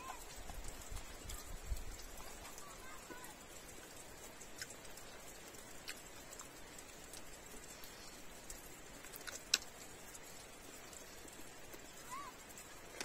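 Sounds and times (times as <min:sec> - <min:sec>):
faint steady hiss: 0:00.0 - 0:13.0
man eating meat off bone: 0:09.0 - 0:09.7
wet mouth clicks and smacks: 0:09.0 - 0:09.7.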